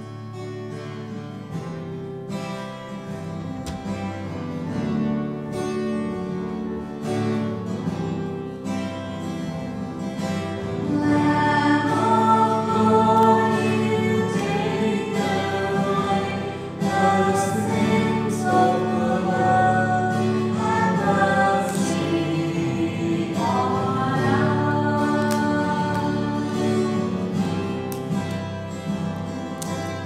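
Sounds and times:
hymn on acoustic guitar: 0:00.0 - 0:30.0
people singing: 0:10.6 - 0:27.9.

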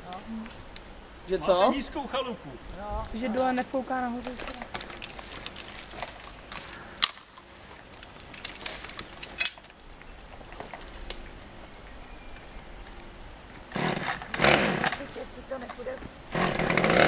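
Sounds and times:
low steady background noise: 0:00.0 - 0:17.0
metal climbing gear clinking: 0:04.2 - 0:11.3.

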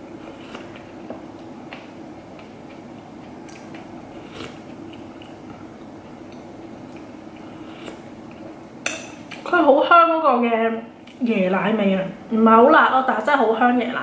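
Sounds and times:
person chewing and eating soup: 0:00.0 - 0:09.4.

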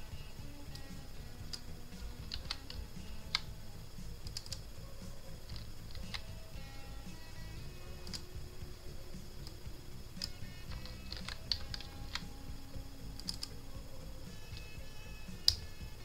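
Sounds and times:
steady low hum: 0:00.0 - 0:16.0
mouse clicks: 0:08.0 - 0:08.3, 0:10.2 - 0:12.4, 0:15.3 - 0:15.7
keyboard keystrokes: 0:10.2 - 0:12.3.

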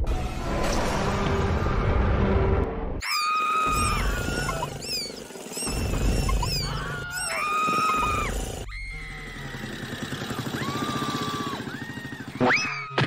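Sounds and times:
high-pitched scream-like cries: 0:03.0 - 0:09.8
motorcycle engine running: 0:03.8 - 0:12.6.

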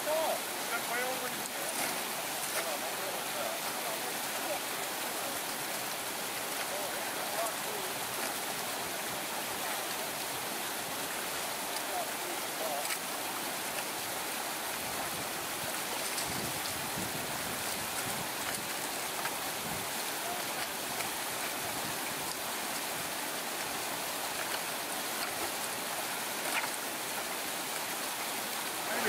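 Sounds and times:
brook running over rocks: 0:00.0 - 0:29.0
faint clicks: 0:12.8 - 0:13.1, 0:26.4 - 0:28.3.

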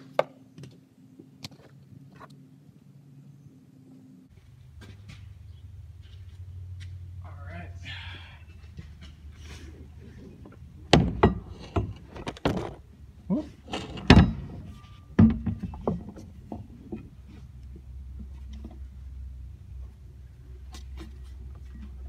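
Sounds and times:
axle shaft clunking against metal: 0:10.1 - 0:12.7, 0:13.6 - 0:17.1.

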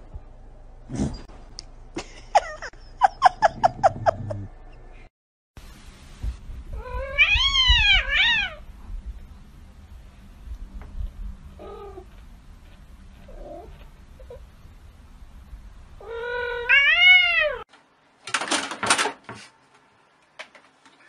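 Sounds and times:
cat meowing: 0:06.8 - 0:08.6, 0:16.0 - 0:17.6.

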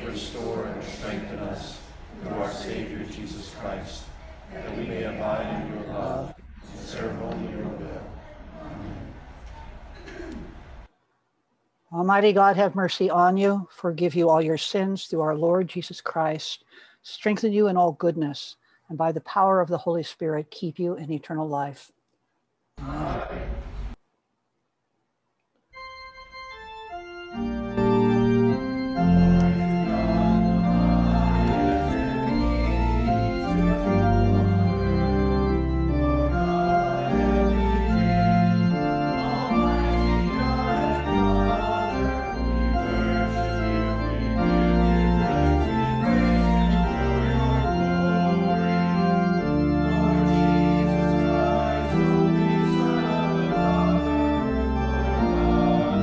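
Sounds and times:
organ music: 0:00.0 - 0:08.1, 0:25.7 - 0:56.0.

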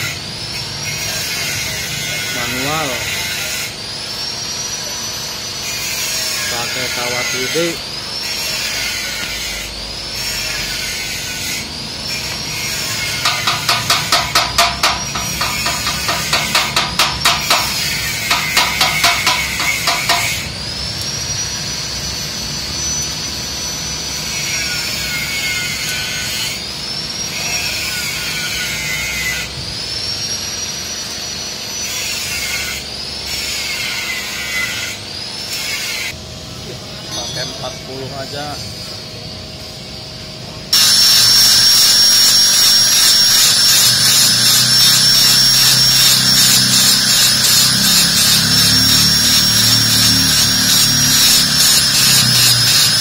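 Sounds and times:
welding arc crackling and hissing: 0:00.0 - 0:26.5, 0:40.7 - 0:53.0
high whine: 0:03.7 - 0:32.9, 0:36.2 - 0:53.0.

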